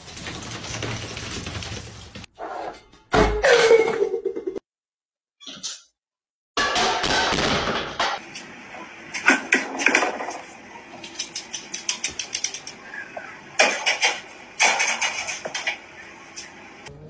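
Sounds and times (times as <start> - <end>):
clatter: 0.0 - 2.3.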